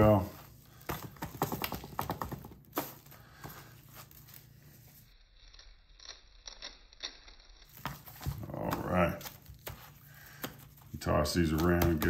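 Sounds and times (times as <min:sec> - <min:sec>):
plastic gloves crinkling: 0:00.0 - 0:05.1, 0:07.6 - 0:12.0.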